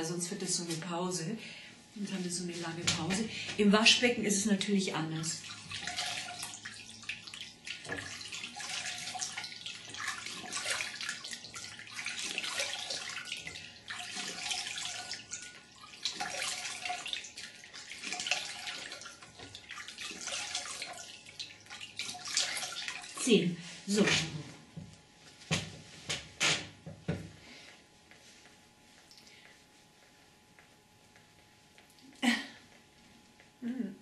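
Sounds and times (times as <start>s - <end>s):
water splashing and dripping: 5.1s - 23.3s.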